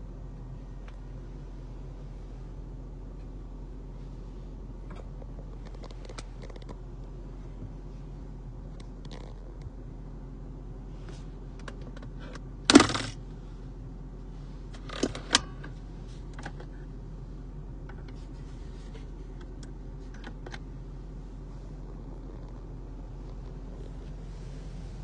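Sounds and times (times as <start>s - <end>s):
compartment lid clattering rattle: 12.7s - 13.2s.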